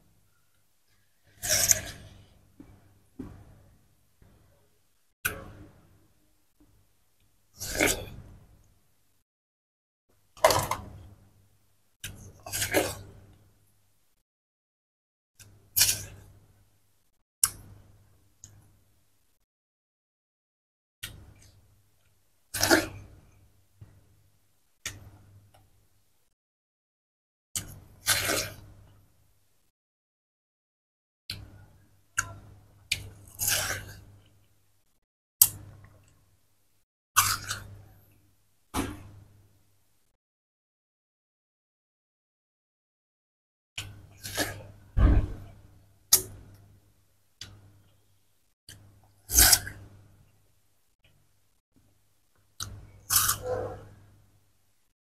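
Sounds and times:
person chewing watermelon: 32.9s - 34.0s, 52.6s - 53.8s
crisp bite into watermelon: 53.1s - 53.8s.

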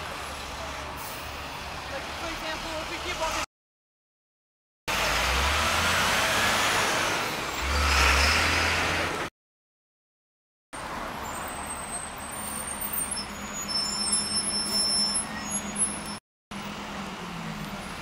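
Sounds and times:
cars driving past: 4.9s - 9.3s.

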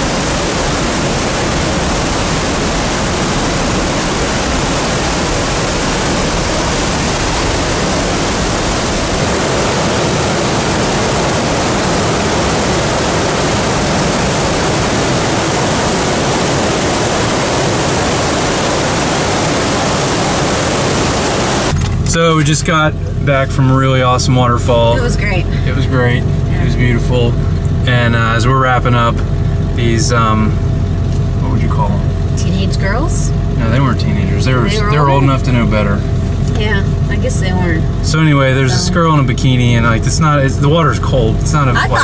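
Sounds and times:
waterfall rushing: 0.0s - 21.7s, 41.6s - 42.0s.

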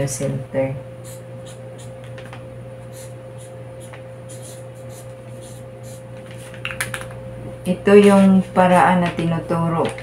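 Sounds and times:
steady electrical hum: 0.0s - 10.0s
marker scratching on paper: 1.0s - 2.0s, 2.9s - 6.0s.

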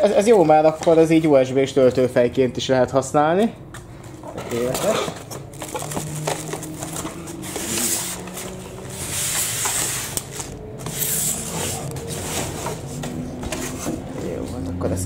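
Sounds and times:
plastic wrapping crinkling: 4.6s - 10.7s.

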